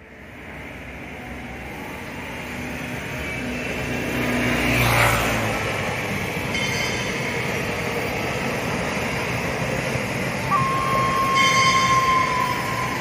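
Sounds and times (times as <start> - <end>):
train rumble and rail noise: 0.0 - 13.0
held flute note: 10.4 - 13.0.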